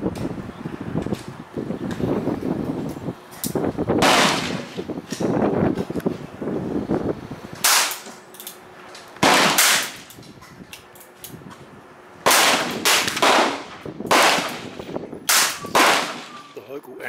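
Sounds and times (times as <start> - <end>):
pistol shots with echo: 4.0 - 4.7, 9.2 - 10.0, 12.2 - 16.5.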